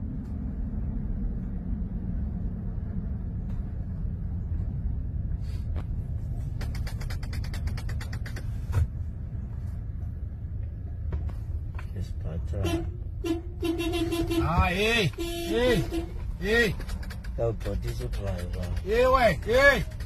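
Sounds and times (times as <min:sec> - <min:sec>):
car cabin road rumble: 0:00.0 - 0:20.0
fast clicking rattle: 0:06.5 - 0:08.6, 0:16.6 - 0:20.0.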